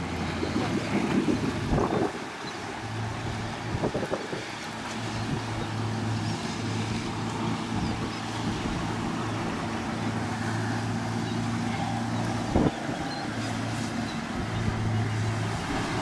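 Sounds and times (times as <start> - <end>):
boat engine humming: 0.0 - 16.0
water: 0.0 - 16.0.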